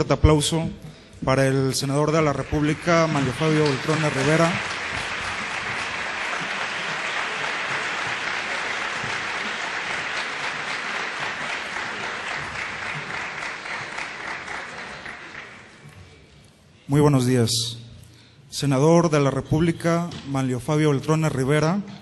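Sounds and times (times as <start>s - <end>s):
audience applauding: 2.0s - 15.9s.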